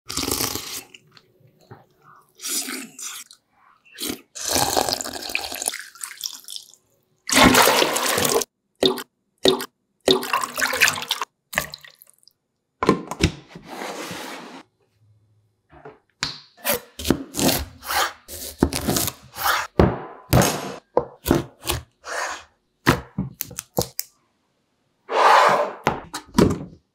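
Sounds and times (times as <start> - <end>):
slurping soup from a spoon: 2.2 - 5.3
water pouring into plastic tub: 4.6 - 8.5.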